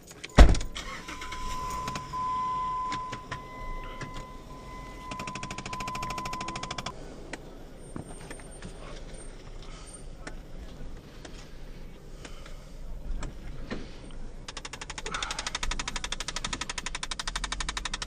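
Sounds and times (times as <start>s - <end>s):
low rumble in car cabin: 0.3s - 14.6s
scattered clicks and knocks: 5.1s - 6.9s, 14.5s - 18.0s
fast even clicking: 14.5s - 18.0s.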